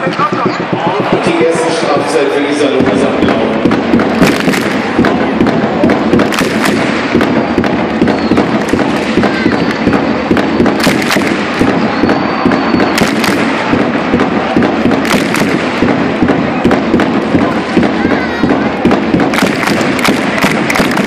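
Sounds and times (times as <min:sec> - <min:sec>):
crowd shouting and chanting: 0:00.0 - 0:21.0
sharp close claps: 0:02.8 - 0:17.9, 0:18.5 - 0:21.0
crowd clapping: 0:04.2 - 0:05.2, 0:08.5 - 0:10.0, 0:19.3 - 0:21.0.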